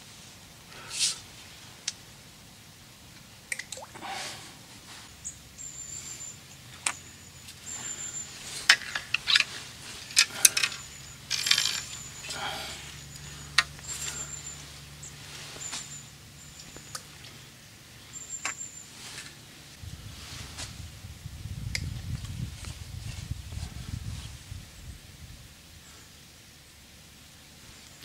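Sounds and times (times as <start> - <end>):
rustling: 4.0 - 21.0.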